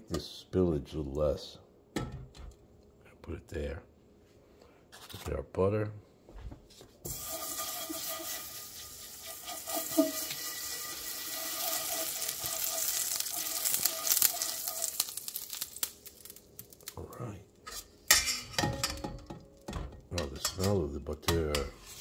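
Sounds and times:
butter sizzling in hot skillet: 7.0s - 17.0s.

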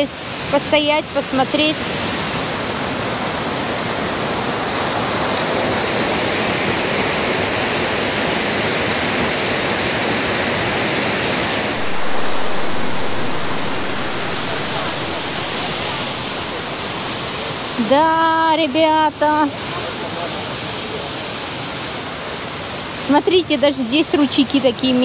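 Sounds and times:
waterfall rushing: 1.8s - 17.8s.

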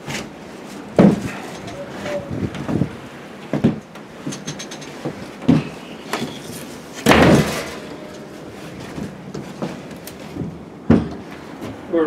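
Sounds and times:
wooden hatch thumping shut: 7.0s - 8.0s
knocks on wood: 10.4s - 11.2s.

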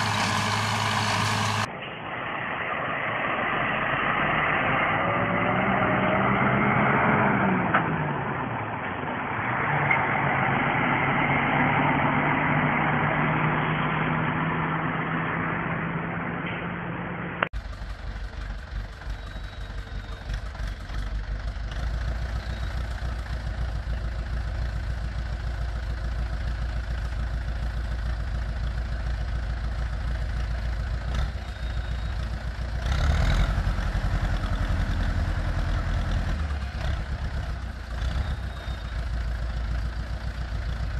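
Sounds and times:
tractor engine running: 0.0s - 1.9s, 16.4s - 40.9s
truck engine driving past: 0.0s - 40.9s.

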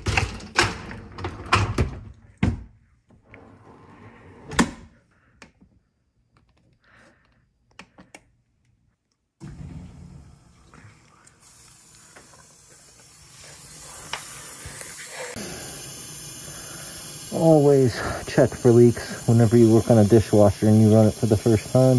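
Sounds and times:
dishwasher filling with water: 9.4s - 21.9s.

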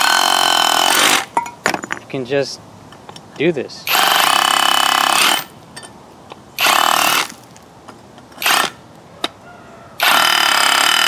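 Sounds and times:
hammer drill hammering concrete: 0.0s - 1.4s, 3.9s - 5.5s, 6.6s - 7.4s, 8.4s - 8.8s, 10.0s - 11.0s.

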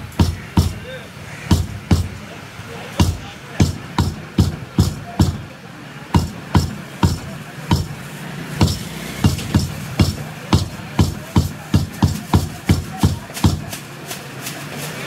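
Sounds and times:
cleaver chopping on wooden block: 0.0s - 0.8s, 1.5s - 2.2s, 3.0s - 5.4s, 6.2s - 8.0s, 8.6s - 13.8s.

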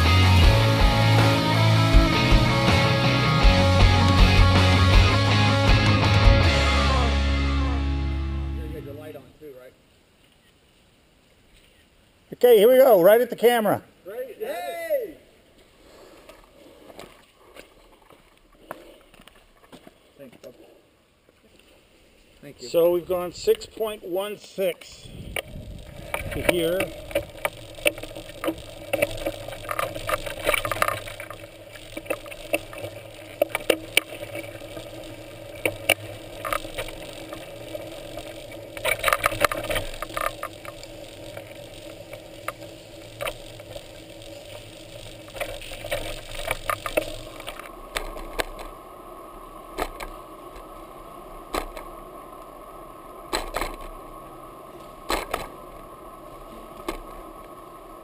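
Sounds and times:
bicycle tyre hum on pavement: 0.0s - 9.2s, 14.9s - 58.0s
bike rattling over bumps: 25.2s - 48.8s.

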